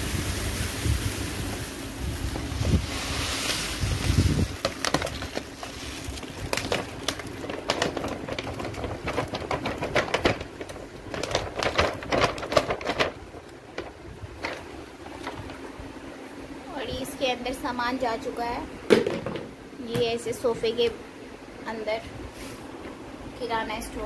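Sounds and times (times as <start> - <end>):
plastic packet handled: 2.6 - 15.8.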